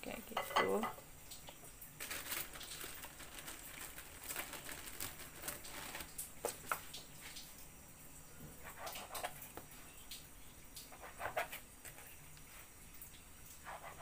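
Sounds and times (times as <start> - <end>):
plastic bag rustling: 1.9 - 6.9.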